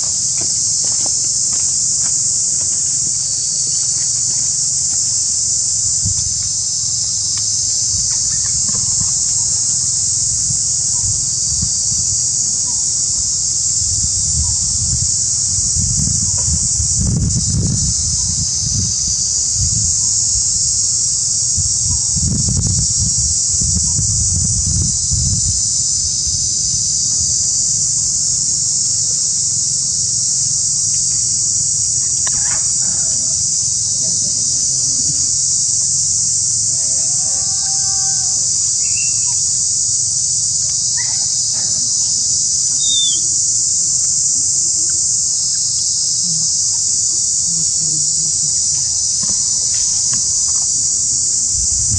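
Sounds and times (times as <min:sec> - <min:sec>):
high-pitched insect chorus: 0:00.0 - 0:51.9
faint short calls: 0:42.7 - 0:43.3.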